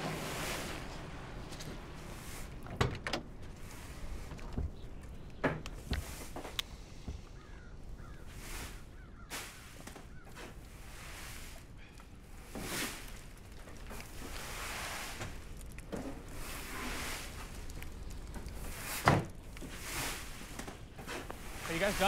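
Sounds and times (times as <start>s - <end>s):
brushing on gritty snowy ground: 0.0s - 2.7s, 7.4s - 22.0s.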